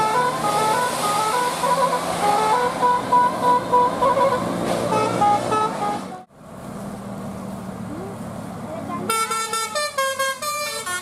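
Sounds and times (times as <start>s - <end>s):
bus horn playing a tune: 0.0s - 6.3s, 9.0s - 11.0s
bus engine and road noise: 0.0s - 11.0s.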